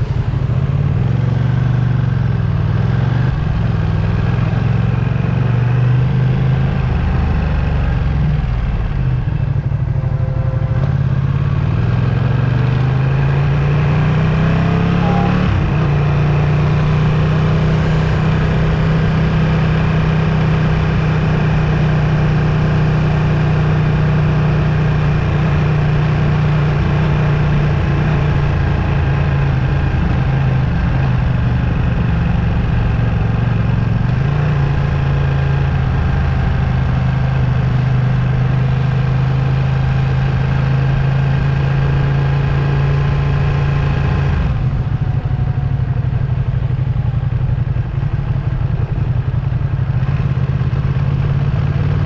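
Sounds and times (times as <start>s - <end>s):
motorcycle engine running: 0.0s - 52.0s.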